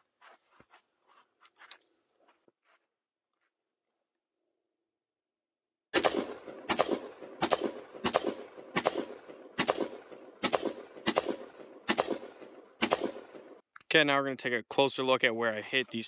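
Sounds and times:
rifle shots with echo: 6.0 - 13.6.

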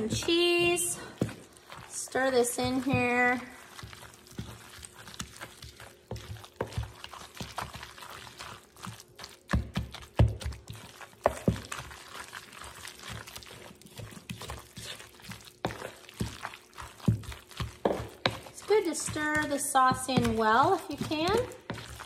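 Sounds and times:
wet squishing of stirred mixture: 0.0 - 22.0.

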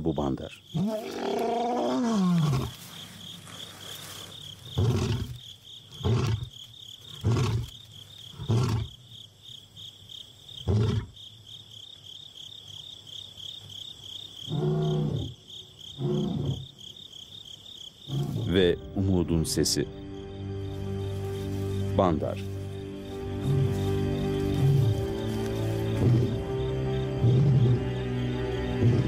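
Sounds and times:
lion roaring: 0.8 - 2.8, 4.8 - 6.5, 16.0 - 16.6.

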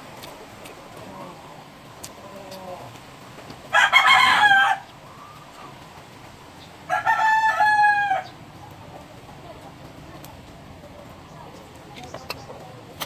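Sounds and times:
rooster crowing: 3.7 - 5.4, 6.9 - 8.4.

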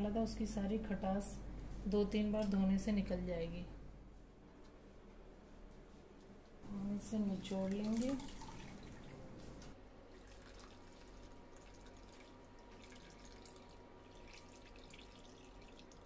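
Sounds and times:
liquid dripping into strainer: 7.5 - 9.2, 10.1 - 16.0.

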